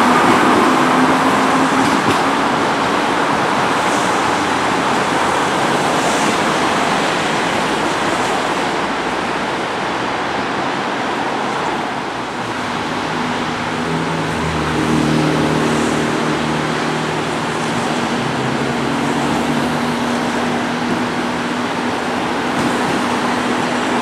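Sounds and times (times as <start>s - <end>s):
metro train pulling away: 0.0s - 24.0s
steady rushing noise: 0.0s - 24.0s.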